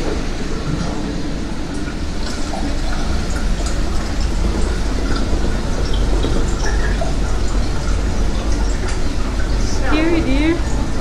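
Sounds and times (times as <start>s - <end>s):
escalator rumbling: 0.0s - 11.0s.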